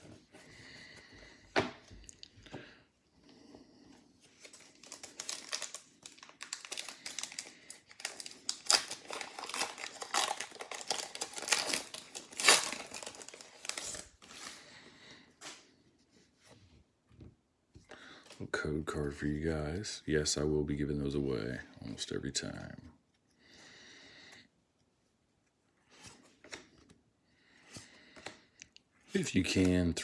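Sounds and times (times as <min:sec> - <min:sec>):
plastic wrapper crinkling and tearing: 0:04.4 - 0:14.5.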